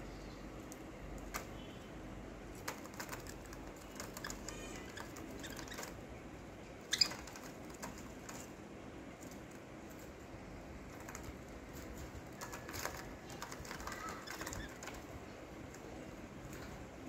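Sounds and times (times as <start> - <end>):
budgerigars clicking and tapping: 2.6 - 6.0, 6.9 - 8.5, 11.0 - 15.1.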